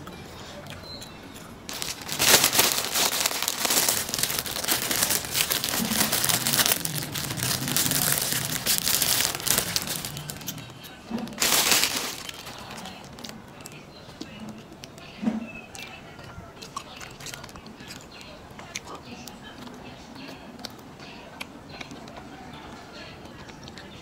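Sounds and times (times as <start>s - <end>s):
plastic bag crinkling: 1.7s - 13.8s.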